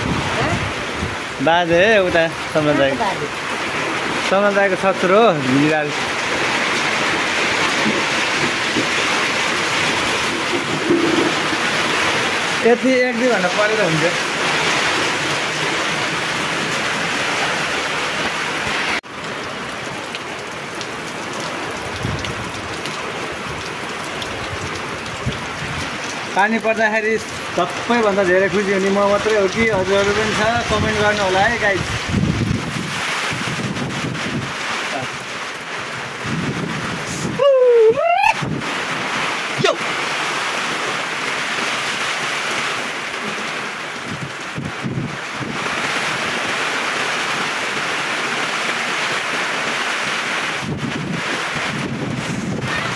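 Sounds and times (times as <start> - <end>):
heavy rain pouring: 0.0 - 52.9
drops falling on wet concrete: 5.5 - 12.2.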